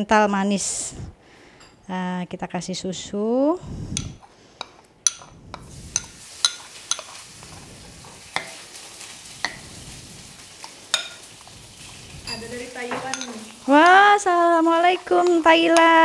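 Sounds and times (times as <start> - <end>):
ladle clinking against ceramic bowl: 5.0 - 5.3, 5.9 - 7.2, 10.9 - 11.2, 12.2 - 14.0
crackly hiss: 5.5 - 16.0.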